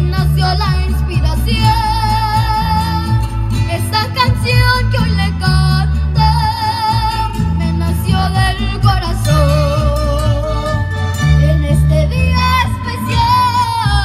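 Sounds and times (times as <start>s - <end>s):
accompanying music with bass line: 0.0s - 14.0s
girl singing a slow ballad: 11.4s - 14.0s.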